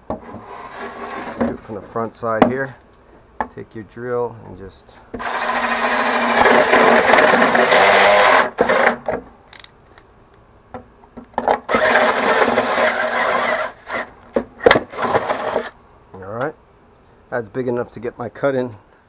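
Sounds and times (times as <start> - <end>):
power drill boring through panel: 5.2 - 9.0, 11.6 - 15.8.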